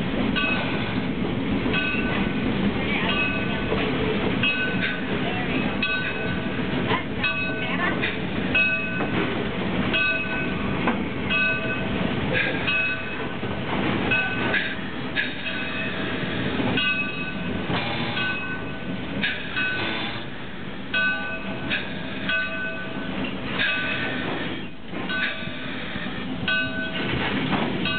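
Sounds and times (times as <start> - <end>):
steam locomotive running: 0.0 - 27.9.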